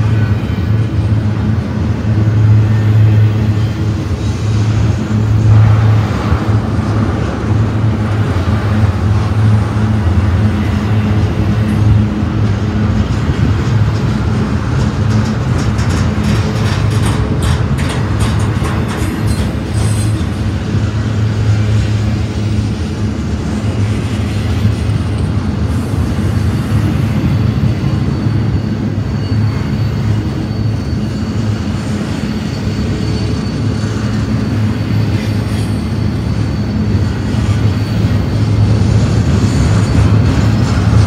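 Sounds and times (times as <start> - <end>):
train wheels rumbling on rails: 0.0 - 41.0
thin wheel squeal: 19.2 - 20.4, 27.8 - 38.8.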